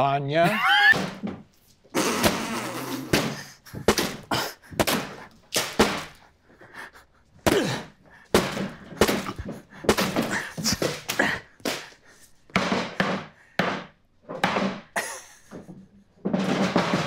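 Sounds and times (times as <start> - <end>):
hammer smashing watermelons: 0.6 - 1.4, 2.0 - 6.3, 7.4 - 15.0.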